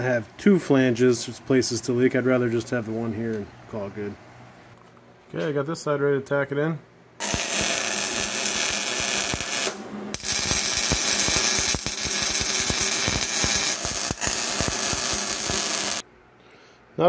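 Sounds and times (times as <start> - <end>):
welding arc crackling and hissing: 7.2 - 16.0.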